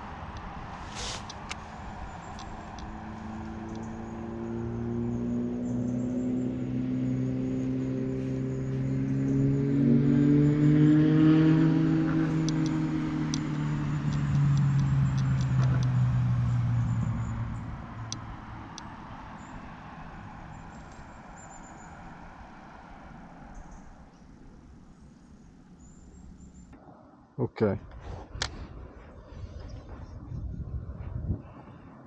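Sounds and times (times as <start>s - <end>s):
passing vehicle engine hum: 0.0s - 27.2s, 27.9s - 32.0s
faint light ticks: 2.2s - 4.0s.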